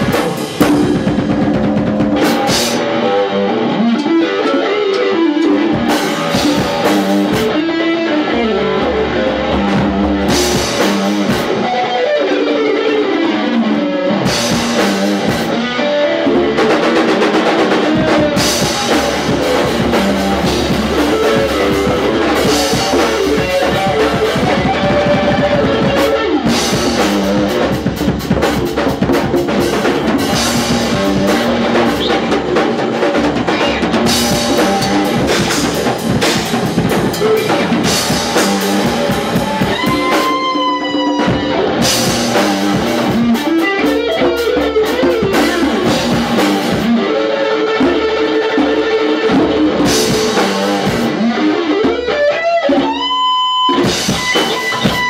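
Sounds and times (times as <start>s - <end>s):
distorted electric guitar: 0.0s - 55.0s
drum kit: 0.0s - 55.0s.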